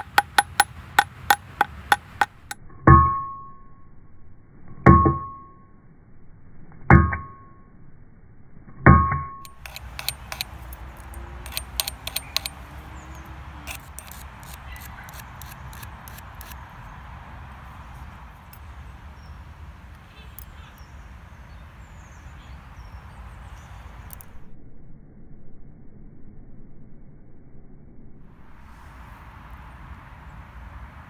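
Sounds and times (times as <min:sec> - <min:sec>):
file rasping on wire: 0:00.0 - 0:00.7, 0:09.5 - 0:12.6, 0:13.6 - 0:16.6
hammer blows on metal: 0:00.0 - 0:03.4.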